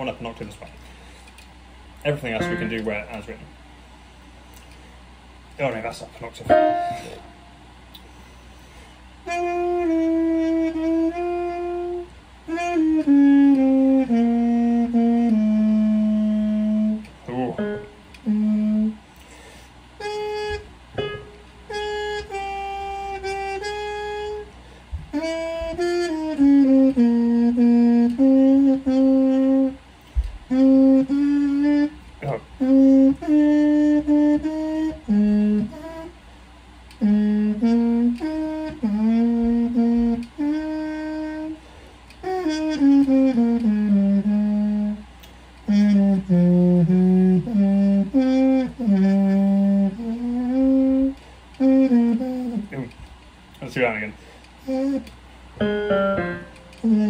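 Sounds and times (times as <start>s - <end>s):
solo trumpet playing: 2.4s - 3.4s, 6.5s - 7.6s, 9.2s - 19.0s, 20.0s - 24.5s, 25.1s - 29.8s, 30.5s - 32.0s, 32.6s - 36.2s, 37.0s - 41.6s, 42.2s - 45.0s, 45.7s - 52.6s, 54.6s - 57.0s.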